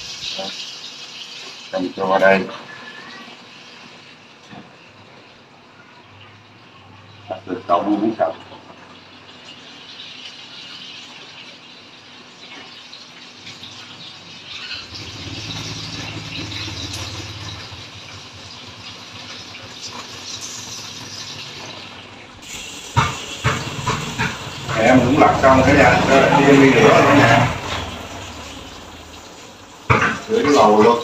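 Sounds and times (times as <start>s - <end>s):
fish sizzling in hot oil: 0.0s - 31.0s
low hum: 14.8s - 19.7s.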